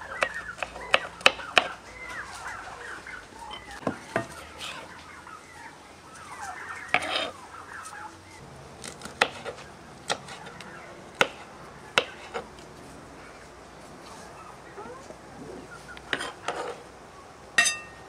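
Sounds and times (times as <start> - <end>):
chicken clucking and squawking: 0.0 - 8.4, 14.1 - 17.3.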